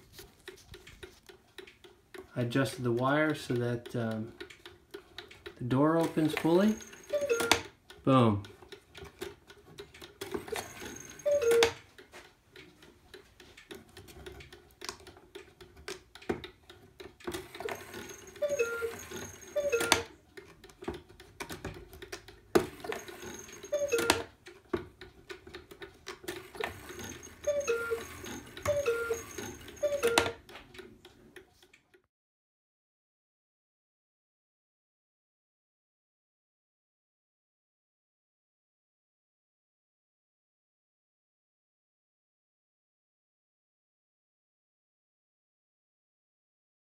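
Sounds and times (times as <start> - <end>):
clock ticking: 0.3 - 31.8
cuckoo clock calling: 4.9 - 8.8, 10.3 - 12.1, 16.7 - 20.5, 22.6 - 24.5, 26.3 - 30.5
clock door clacking: 25.6 - 30.9.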